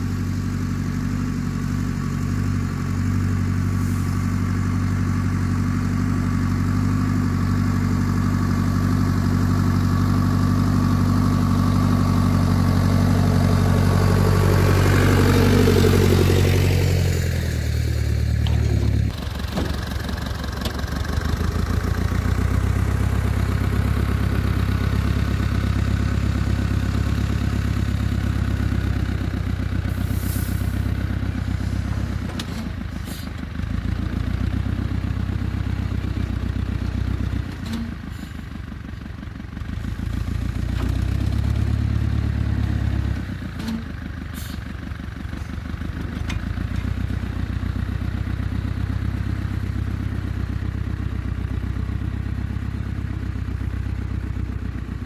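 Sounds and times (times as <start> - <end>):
small tractor engine running: 0.0 - 55.0.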